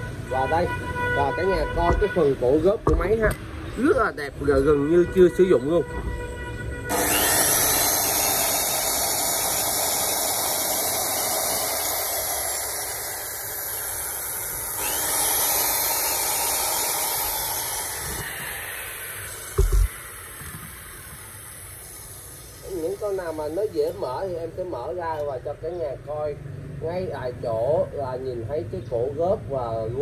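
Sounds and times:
short knocks: 2.8 - 3.4
loud rushing hiss: 6.9 - 24.3.

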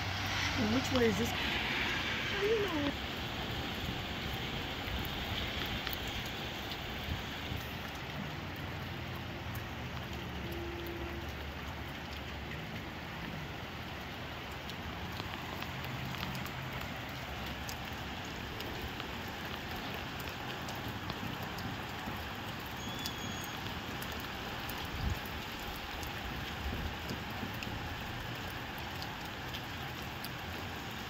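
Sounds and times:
steady rain falling: 0.0 - 31.0
drops ticking on a surface: 7.6 - 31.0.

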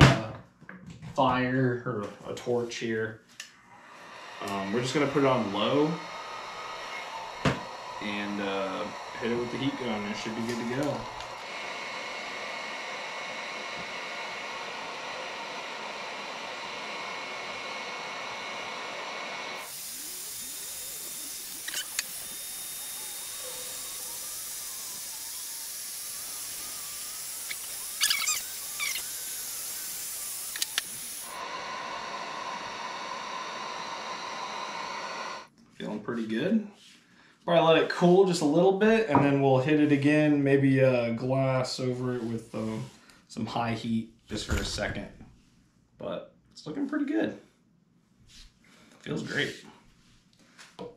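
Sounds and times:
heat gun blowing: 3.5 - 35.5.

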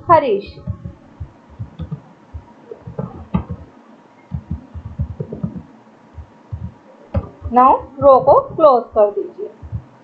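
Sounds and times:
computer keyboard typing: 1.6 - 2.1, 2.8 - 3.7, 4.3 - 5.7, 6.5 - 9.9.

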